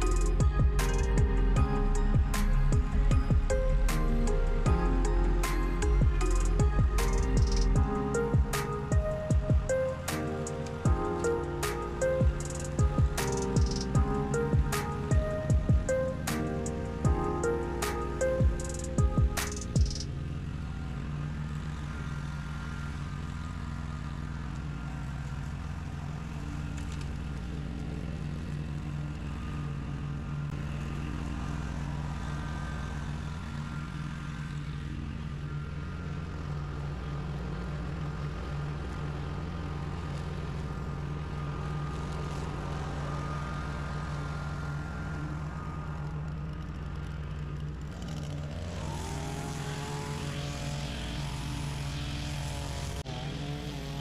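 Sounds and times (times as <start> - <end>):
riding mower engine running: 0.0 - 54.0
string trimmer engine revving: 38.5 - 54.0.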